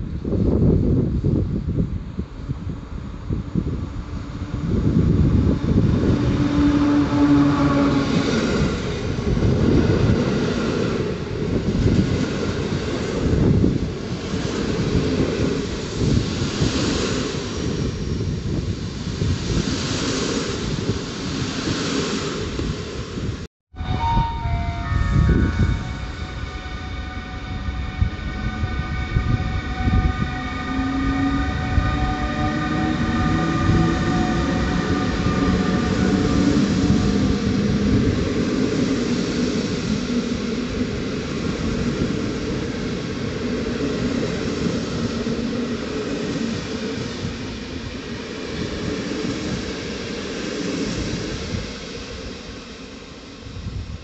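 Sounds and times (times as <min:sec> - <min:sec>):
train wheels rumbling on rails: 0:00.0 - 0:54.0
high ringing tones: 0:23.8 - 0:36.4
low tone rising in pitch: 0:23.8 - 0:36.5.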